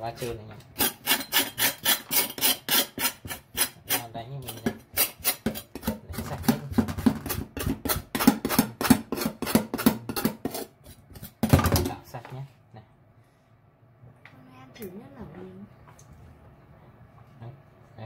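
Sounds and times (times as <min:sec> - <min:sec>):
knife rasping on shell: 0:00.8 - 0:06.1, 0:07.2 - 0:11.4.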